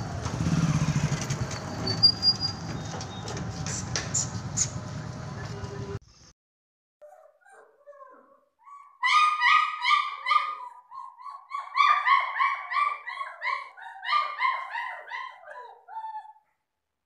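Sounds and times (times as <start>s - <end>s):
puppy whining: 7.0s - 16.4s.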